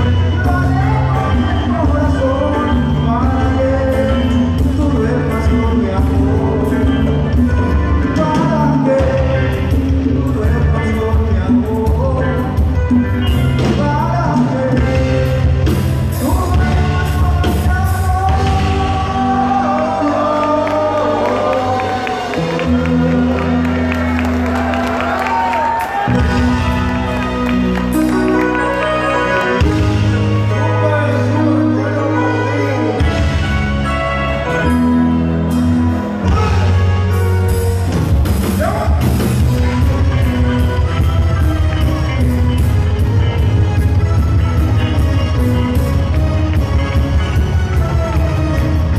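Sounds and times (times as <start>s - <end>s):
person singing: 0.0s - 24.3s, 26.1s - 37.3s
live band playing: 0.0s - 48.9s.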